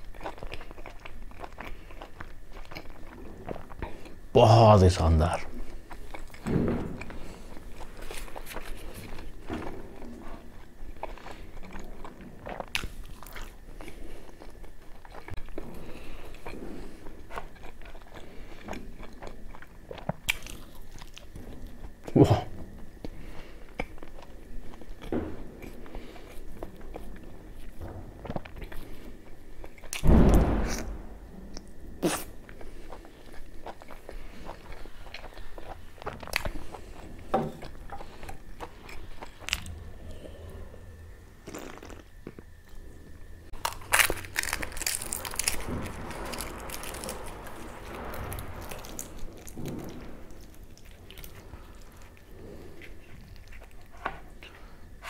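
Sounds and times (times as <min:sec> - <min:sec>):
wet chewing and smacking: 0:00.0 - 0:04.3, 0:05.5 - 0:22.1
loud thump: 0:30.0 - 0:31.4
person gulping drink: 0:41.4 - 0:42.5.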